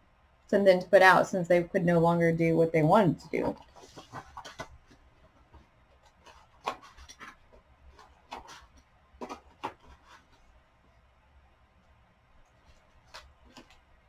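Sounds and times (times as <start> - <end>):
paper pages rustling: 3.4 - 10.5, 12.5 - 13.9.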